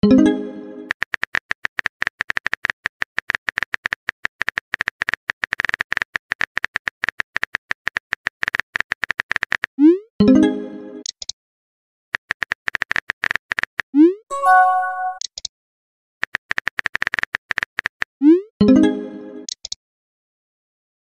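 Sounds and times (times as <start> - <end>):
pitched chime: 14.3 - 15.2.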